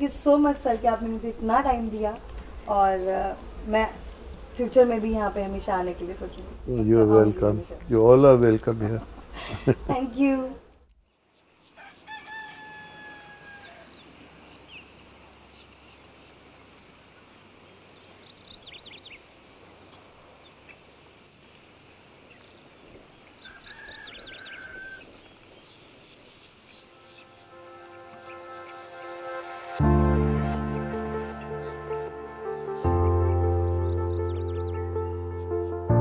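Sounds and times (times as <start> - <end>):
small birds chirping: 0.0 - 12.0, 13.5 - 21.2, 22.1 - 35.9
rooster crowing: 11.8 - 14.0, 23.4 - 25.1.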